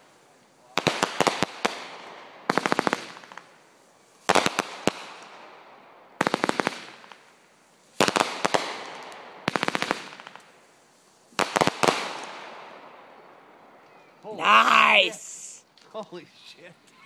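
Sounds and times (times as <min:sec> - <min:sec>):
fireworks crackling bursts: 0:00.0 - 0:13.2.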